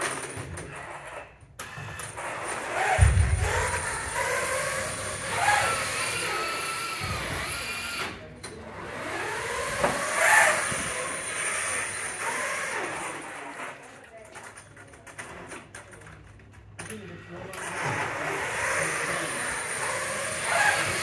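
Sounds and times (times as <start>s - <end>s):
electric motors whining: 0.9s - 13.7s, 17.6s - 21.0s
low thuds: 3.0s - 6.0s.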